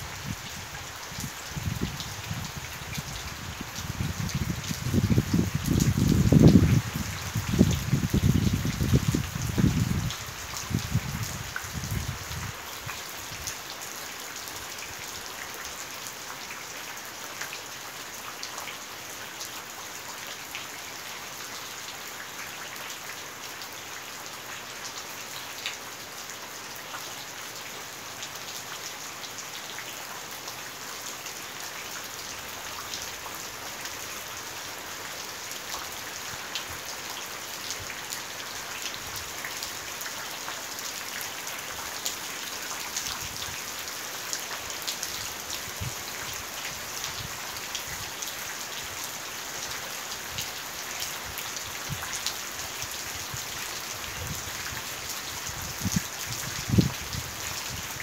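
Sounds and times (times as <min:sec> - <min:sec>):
rain falling on puddles: 0:00.0 - 0:58.0
wind buffeting microphone: 0:01.6 - 0:10.1, 0:10.7 - 0:12.5, 0:55.5 - 0:57.8.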